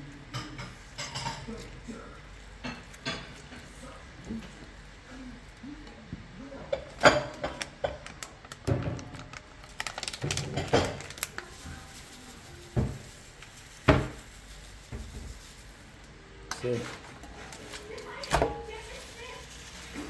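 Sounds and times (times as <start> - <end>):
plastic packet rustling and crinkling: 7.1 - 20.0.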